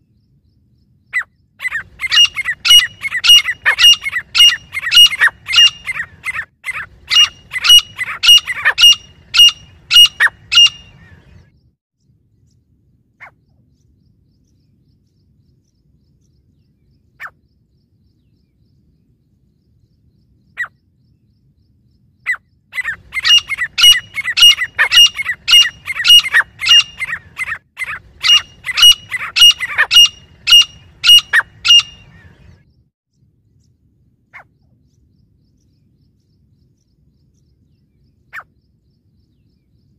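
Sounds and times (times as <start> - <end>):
francolins calling: 1.1 - 11.5, 22.2 - 32.6.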